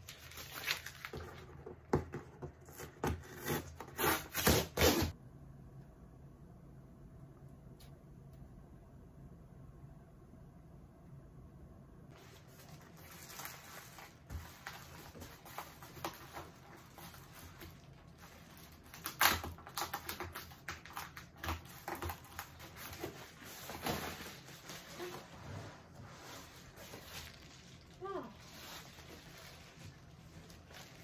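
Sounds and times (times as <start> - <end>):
packing paper and bubble wrap crinkling: 0.0 - 5.2, 12.1 - 31.0.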